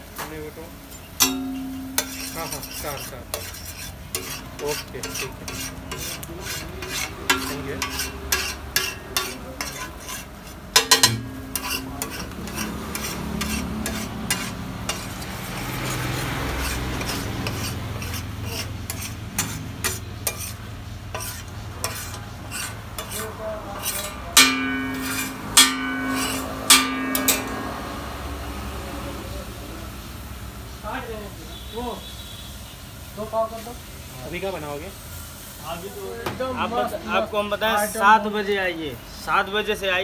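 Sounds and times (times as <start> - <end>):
light sizzle: 0.0 - 40.0
metal spatula scraping griddle: 0.9 - 28.6.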